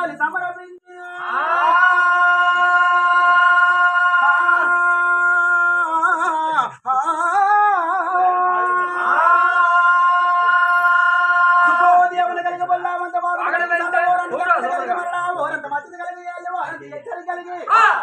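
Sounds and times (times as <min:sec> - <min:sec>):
man singing folk chant: 0:00.8 - 0:18.0.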